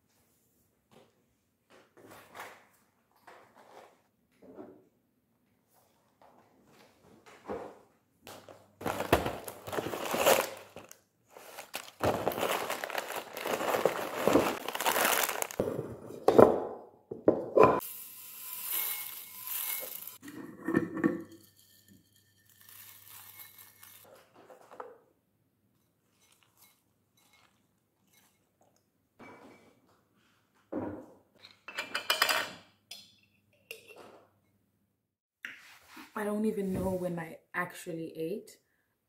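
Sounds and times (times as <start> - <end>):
cereal packet crinkling and tearing: 8.8 - 15.6
cereal pouring into a bowl: 11.4 - 15.6, 17.8 - 20.2, 22.4 - 24.0.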